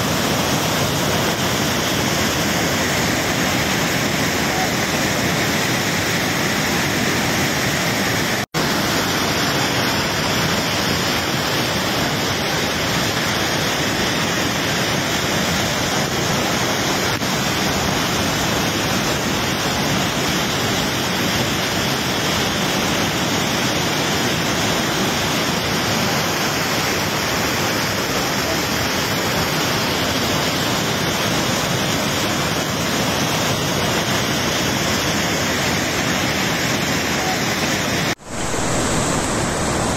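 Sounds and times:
floodwater rushing: 0:00.0 - 0:39.9
waterfall roaring: 0:00.0 - 0:39.9.

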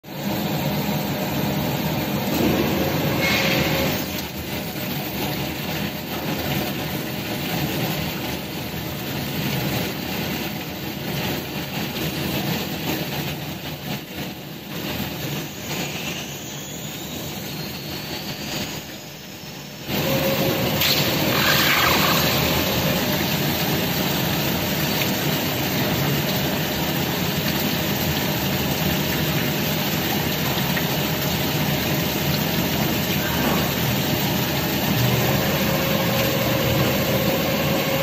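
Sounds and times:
induction hardening machine running: 0:19.8 - 0:28.7, 0:31.2 - 0:38.0.

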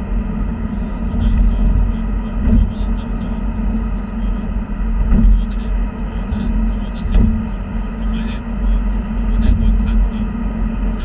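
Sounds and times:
car cabin road rumble: 0:00.0 - 0:11.0.

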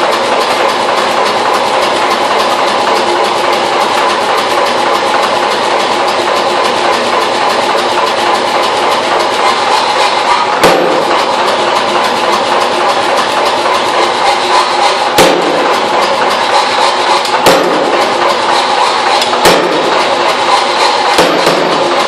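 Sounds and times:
loud mechanical noise: 0:00.0 - 0:22.0
hammer striking metal: 0:08.3 - 0:22.0.

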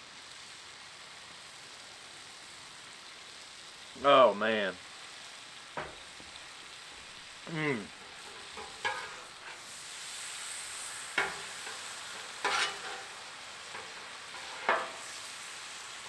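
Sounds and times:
steak sizzling on a griddle: 0:00.0 - 0:16.0
metal spatula scraping griddle: 0:08.0 - 0:15.3.

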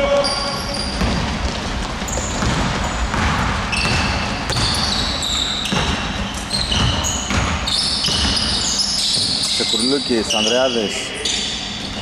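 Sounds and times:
sneakers squeaking: 0:00.0 - 0:12.0
basketball bouncing on wooden floor: 0:00.8 - 0:09.6.

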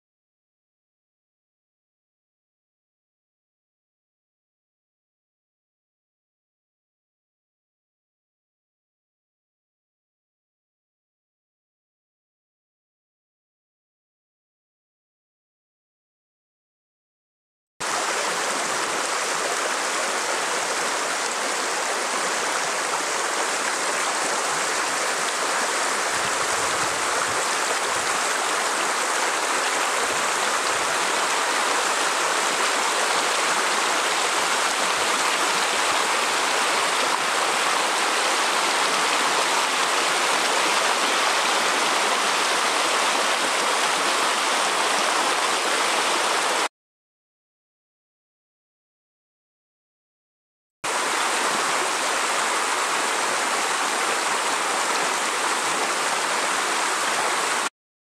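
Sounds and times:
rushing river water: 0:17.8 - 0:46.7, 0:50.9 - 0:57.7.

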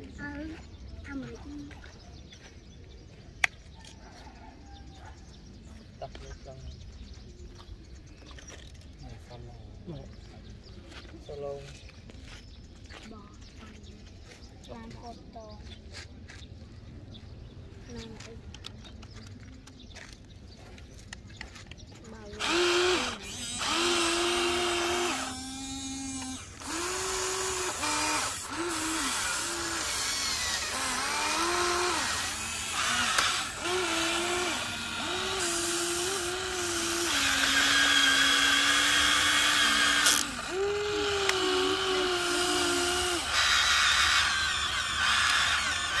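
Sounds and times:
electric motors whining: 0:22.2 - 0:46.0.

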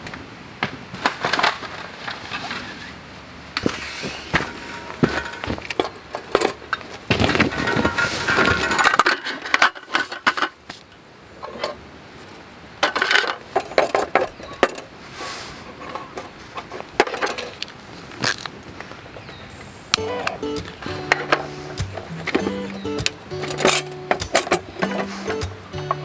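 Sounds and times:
metal table slats clattering: 0:03.6 - 0:06.6, 0:07.3 - 0:10.4, 0:20.0 - 0:26.0.

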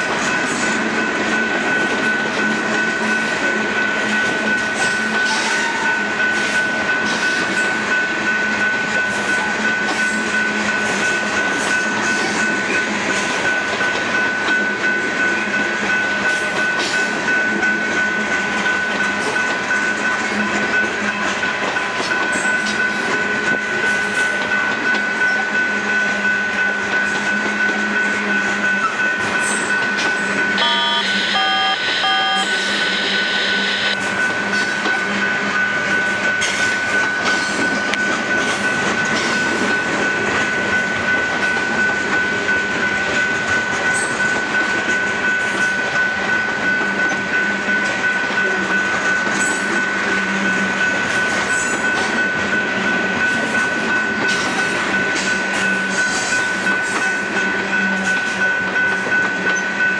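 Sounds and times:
train wheels clattering on rails: 0:00.0 - 0:33.3, 0:34.0 - 0:59.9
steady high whine: 0:30.5 - 0:34.0
electronic beeps: 0:30.6 - 0:34.0.

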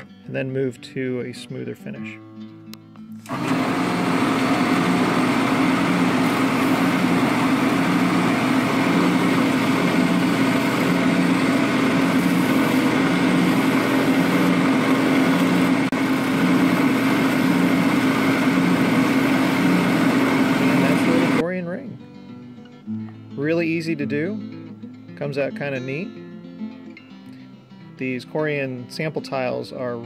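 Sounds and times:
drill press humming: 0:03.2 - 0:21.4
sandpaper sanding a ring: 0:12.0 - 0:14.5.

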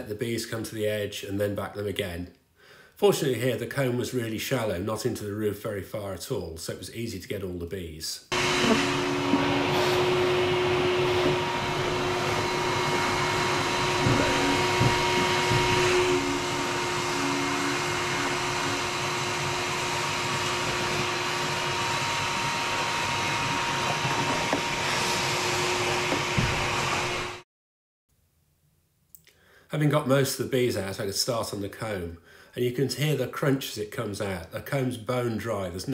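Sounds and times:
vacuum motor whining: 0:08.3 - 0:27.4.

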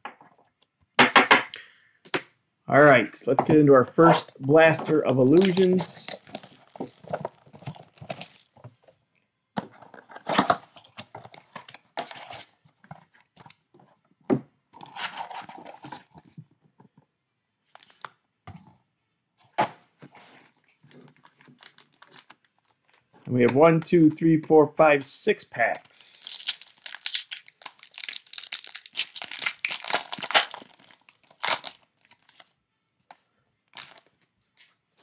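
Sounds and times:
foil packs rustling: 0:04.8 - 0:08.6, 0:26.2 - 0:32.5, 0:33.7 - 0:34.2
plastic wrap tearing and crinkling: 0:05.2 - 0:08.6, 0:20.6 - 0:23.0, 0:25.9 - 0:34.2.

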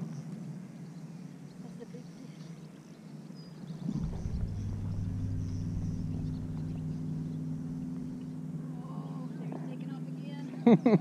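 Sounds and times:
low engine drone: 0:03.7 - 0:10.3.

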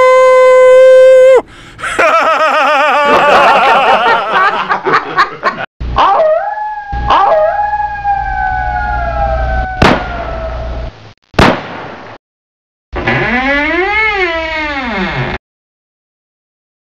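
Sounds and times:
long falling wail: 0:00.0 - 0:04.2, 0:06.0 - 0:10.9
low rising wail: 0:06.1 - 0:10.9
low rumble: 0:06.9 - 0:11.2.

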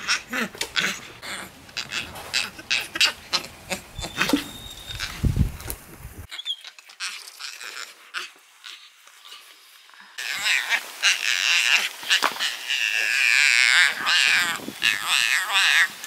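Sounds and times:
monkey yelling: 0:00.0 - 0:05.3, 0:10.2 - 0:16.0.

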